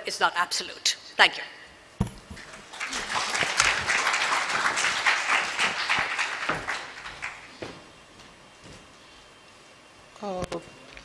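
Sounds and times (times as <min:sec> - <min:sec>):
audience applauding: 0:02.6 - 0:07.6.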